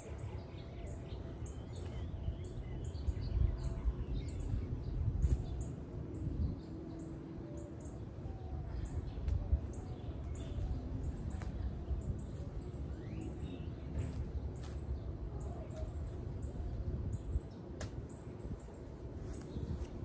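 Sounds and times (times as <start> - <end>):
small birds chirping: 0.0 - 20.0
steady low rumble: 0.0 - 20.0.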